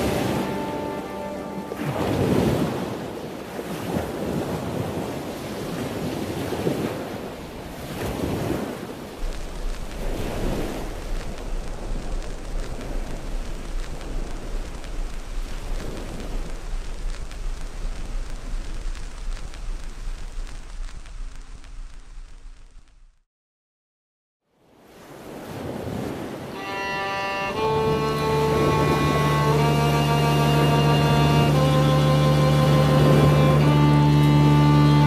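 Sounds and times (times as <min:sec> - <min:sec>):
sea water churning and surging: 0:00.0 - 0:18.8, 0:24.7 - 0:35.0
steady low rumble: 0:09.2 - 0:23.2, 0:27.4 - 0:35.0.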